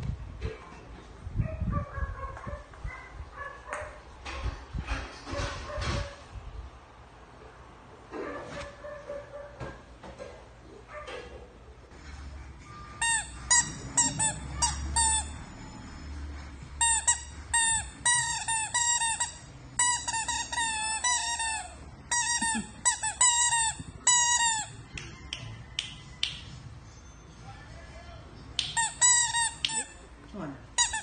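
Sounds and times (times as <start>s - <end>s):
rubber dog toy squeaking: 13.0s - 15.5s, 16.8s - 25.3s, 28.6s - 30.0s, 30.8s - 31.0s.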